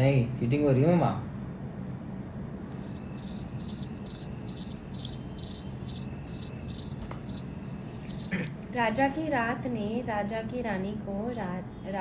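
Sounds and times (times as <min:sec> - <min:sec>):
crickets chirping: 0:02.7 - 0:08.5.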